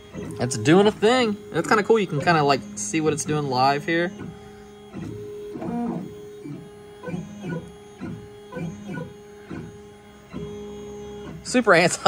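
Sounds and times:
stepper motors whining: 0:00.0 - 0:12.0.

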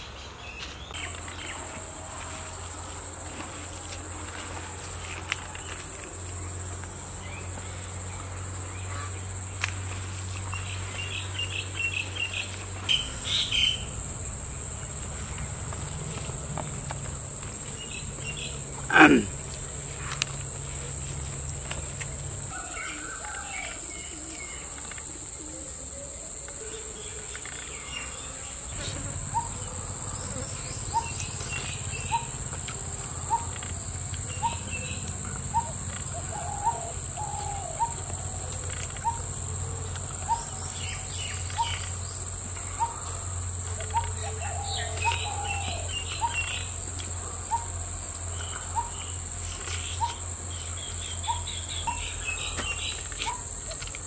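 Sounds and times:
high-pitched insect drone: 0:00.0 - 0:54.0
bird chirps: 0:30.4 - 0:32.4, 0:33.2 - 0:39.3, 0:40.2 - 0:43.2, 0:43.8 - 0:46.8, 0:48.3 - 0:53.9.

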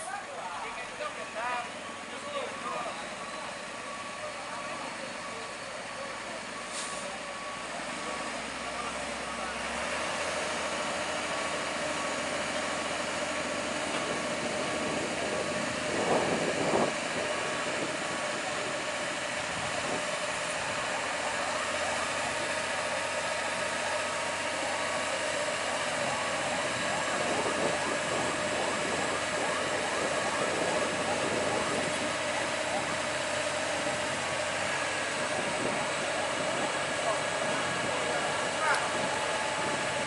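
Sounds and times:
heavy truck engine running: 0:00.0 - 0:40.0.

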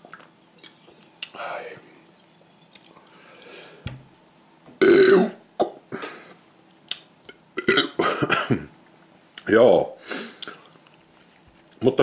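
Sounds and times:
man burping loudly: 0:04.8 - 0:05.4.

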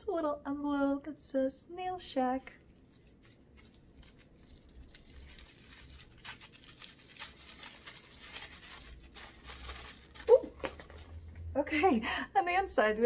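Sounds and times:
paper envelope crinkling: 0:02.6 - 0:11.3.

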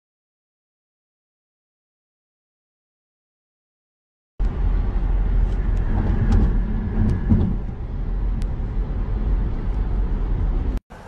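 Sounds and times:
car road and wind noise: 0:04.4 - 0:11.0.

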